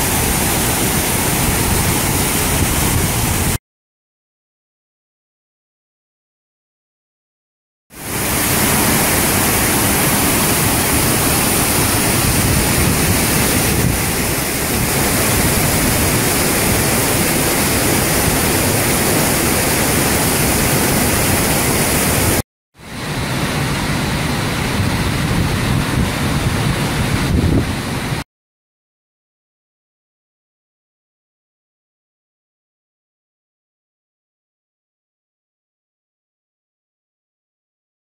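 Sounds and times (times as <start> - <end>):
rush of falling water: 0.0 - 3.6, 8.0 - 28.2.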